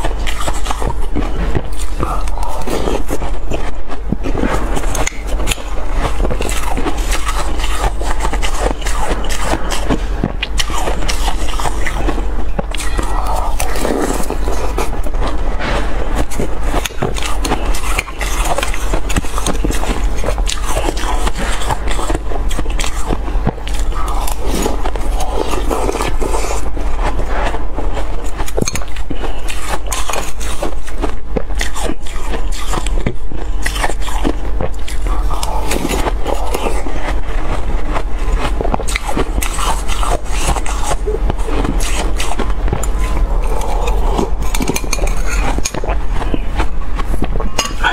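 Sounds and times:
crushed ice being chewed: 0.0 - 47.9
metal spoon scraping glass bowl: 43.5 - 45.8, 47.6 - 47.9.

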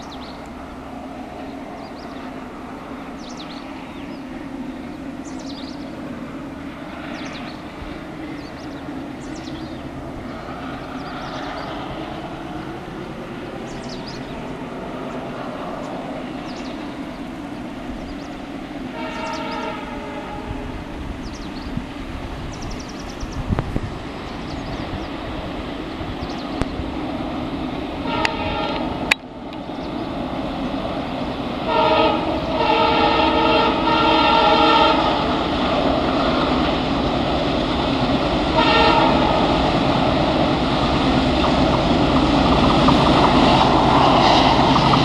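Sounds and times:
birds chirping: 0.0 - 20.4, 21.0 - 27.6, 29.5 - 31.5
diesel locomotive engine drone: 0.0 - 45.0
locomotive air horn: 18.9 - 20.7, 28.0 - 29.0, 31.6 - 35.4, 38.5 - 39.6.

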